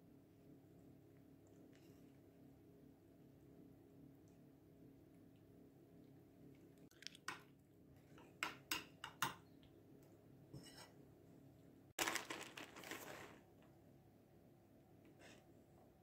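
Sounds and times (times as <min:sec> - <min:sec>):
kitchenware clicks and taps: 0:08.2 - 0:09.5.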